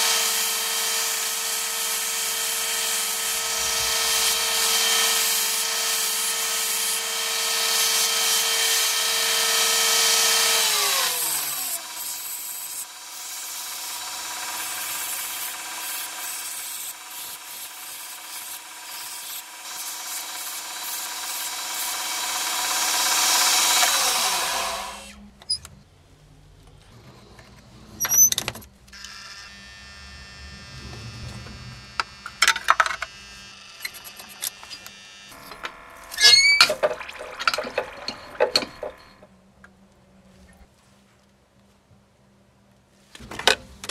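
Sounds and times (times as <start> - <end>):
belt grinder grinding steel: 0.0 - 25.2, 29.0 - 39.3.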